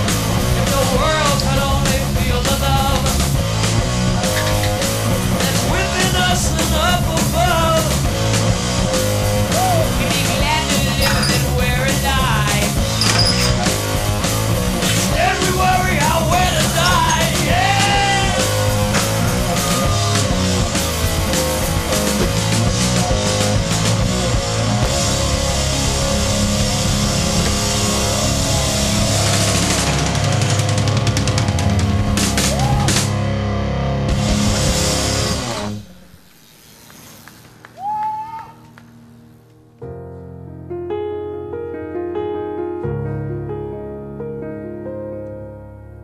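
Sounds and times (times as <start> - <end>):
loud rock music: 0.0 - 36.2.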